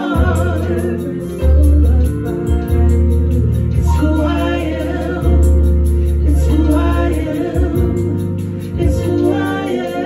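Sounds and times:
keyboard chords and bass: 0.0 - 10.0
people singing: 0.0 - 10.0.

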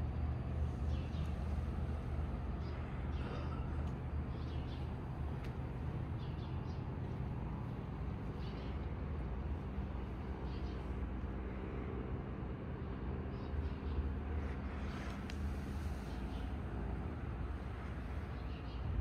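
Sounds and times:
low street rumble: 0.0 - 19.0
small birds chirping: 0.9 - 1.7, 4.2 - 11.2, 12.8 - 19.0.

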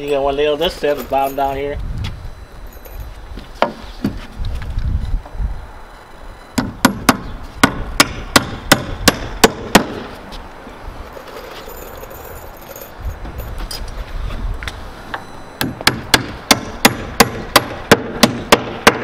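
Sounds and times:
hammer striking nail: 6.6 - 10.1, 15.6 - 19.0.

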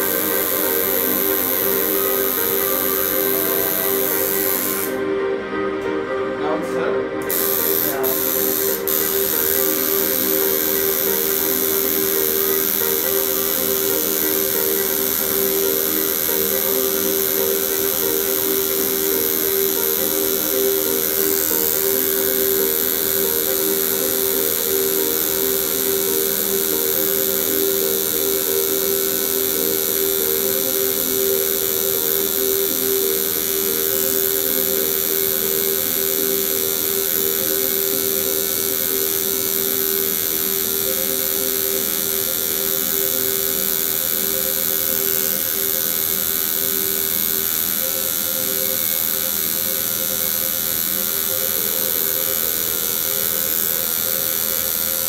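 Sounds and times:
tattoo machine buzzing: 0.0 - 5.3, 7.2 - 55.0.

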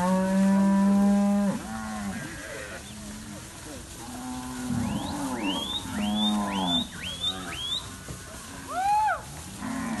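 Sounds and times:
cattle mooing: 4.2 - 7.7.

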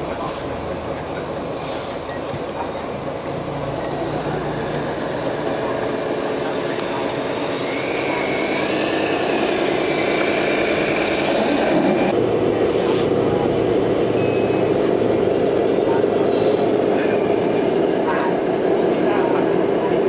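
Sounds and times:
wavering higher whine: 2.9 - 20.0
toy truck drive whine: 3.3 - 15.4.

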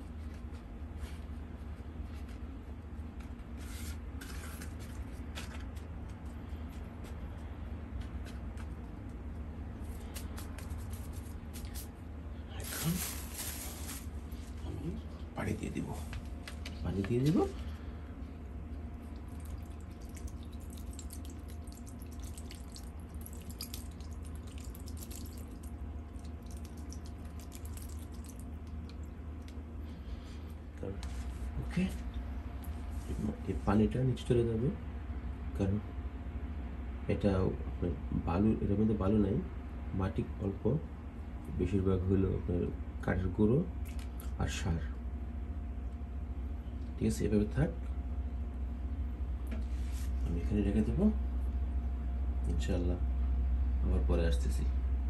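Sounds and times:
steady low hum: 0.0 - 55.0
hands rustling potting mix: 12.6 - 14.8
water splashing onto potting mix: 19.1 - 29.1.

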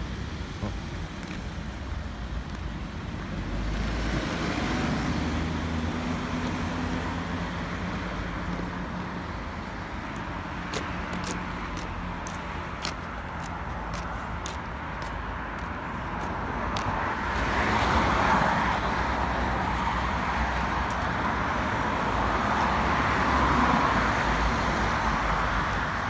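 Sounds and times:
road traffic rushing: 0.0 - 26.0.

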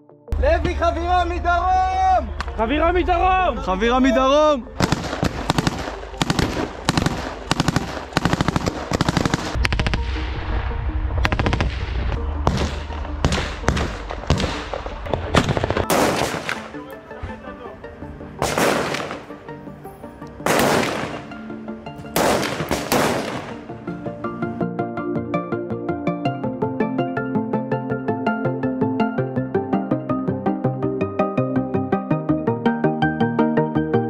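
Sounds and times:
faint music: 0.3 - 25.0
assault rifle gunfire: 4.8 - 9.8, 15.3 - 16.8, 18.4 - 19.4, 20.4 - 21.4, 22.2 - 23.7
loud long blasts: 20.4 - 21.5, 22.2 - 23.8.

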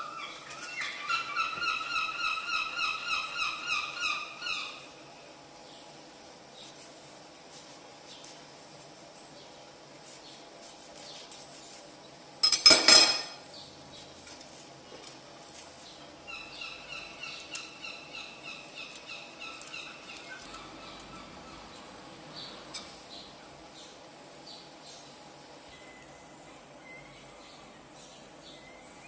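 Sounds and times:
bird chirping: 15.9 - 29.0.

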